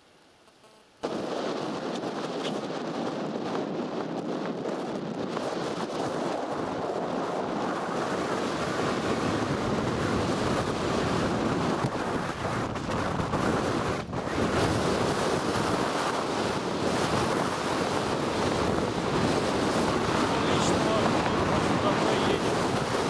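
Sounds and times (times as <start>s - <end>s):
wind buffeting microphone: 1.0s - 23.0s.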